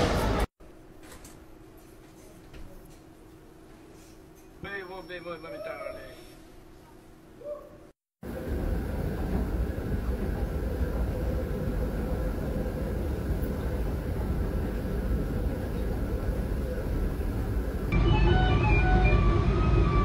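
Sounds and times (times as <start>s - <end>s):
subway station rumble: 0.0s - 0.5s, 8.2s - 20.0s.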